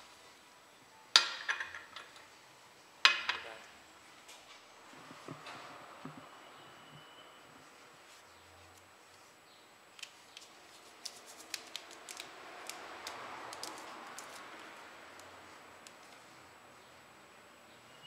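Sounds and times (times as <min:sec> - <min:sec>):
paper sachet crinkling: 0:10.0 - 0:14.7
paper tearing rustle: 0:10.0 - 0:14.8.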